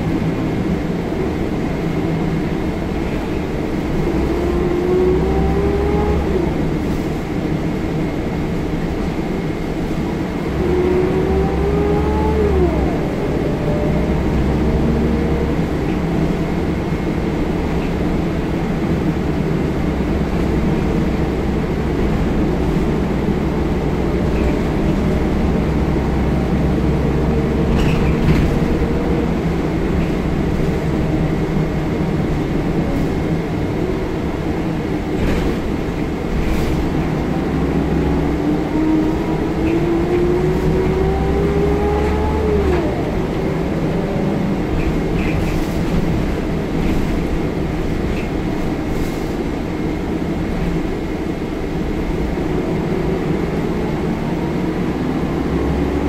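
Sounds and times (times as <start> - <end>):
engine whine accelerating: 0.0 - 8.3, 9.0 - 47.4, 52.1 - 56.0
bus diesel engine hum: 0.0 - 56.0
road noise: 0.0 - 56.0
bus body knocks and rattles: 27.4 - 33.8, 34.5 - 37.3, 44.6 - 49.6.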